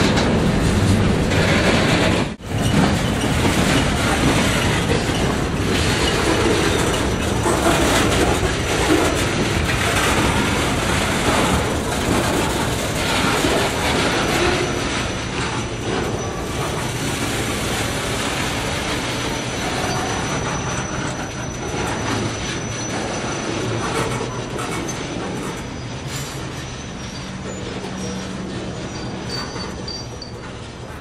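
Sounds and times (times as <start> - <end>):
train wheels clattering on rail: 0.0 - 31.0
high-pitched wheel squeal: 18.6 - 31.0.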